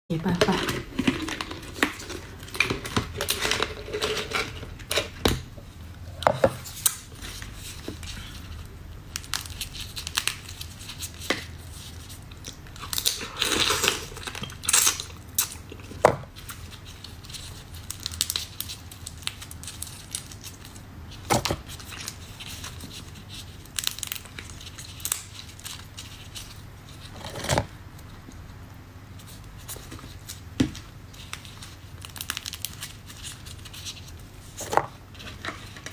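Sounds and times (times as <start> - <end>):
plastic gloves crinkling: 6.5 - 28.3, 29.1 - 35.9
crab shell cracking and tearing: 9.1 - 20.8, 21.7 - 26.5, 30.2 - 34.2.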